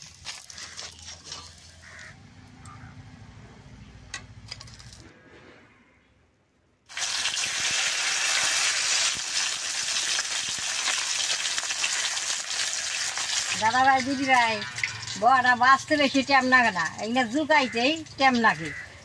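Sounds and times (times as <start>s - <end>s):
fritters sizzling in hot oil: 6.9s - 19.0s.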